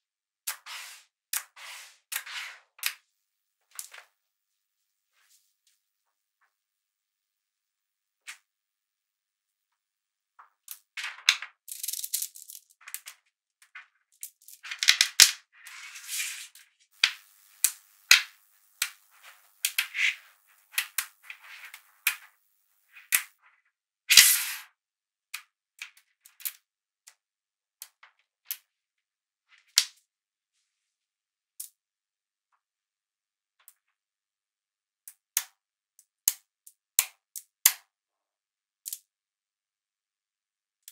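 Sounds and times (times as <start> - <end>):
magnetic balls clicking together: 10.6 - 15.4, 17.0 - 23.4.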